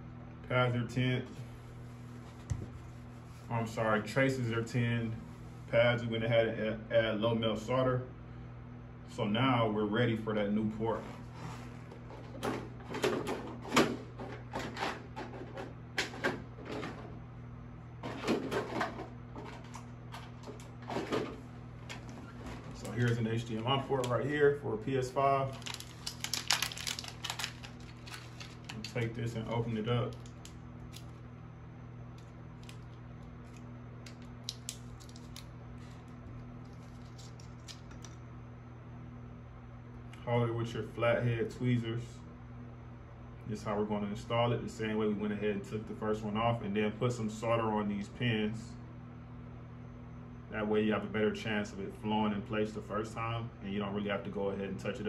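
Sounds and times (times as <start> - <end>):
steady low hum: 0.0 - 55.0
packaging clicking and crinkling: 25.5 - 31.1, 32.2 - 35.5, 36.6 - 38.2.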